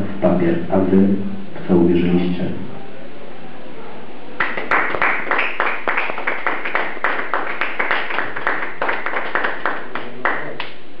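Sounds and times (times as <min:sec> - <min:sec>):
audience applauding: 0:04.4 - 0:10.7.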